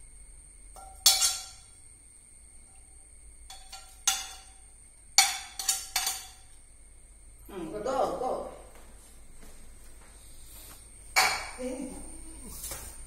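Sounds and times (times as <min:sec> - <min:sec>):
metal spoon clinking on dishes: 0:00.8 - 0:01.7, 0:03.5 - 0:04.6, 0:05.2 - 0:06.5.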